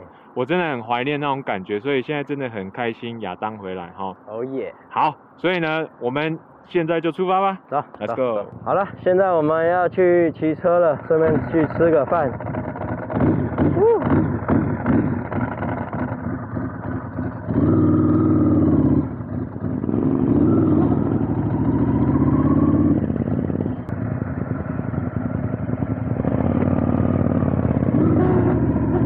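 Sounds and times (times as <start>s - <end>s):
motorcycle engine pulling away: 11.0s - 29.0s.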